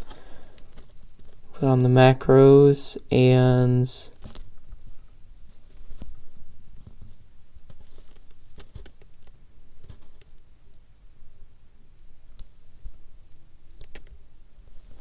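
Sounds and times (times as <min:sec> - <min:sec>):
small plastic pieces clicking: 0:13.7 - 0:14.2.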